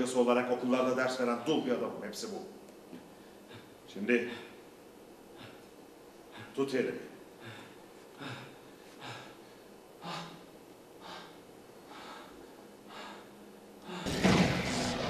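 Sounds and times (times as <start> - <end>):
man breathing hard in gasps: 7.4 - 14.1
loud rushing noise: 14.1 - 15.0.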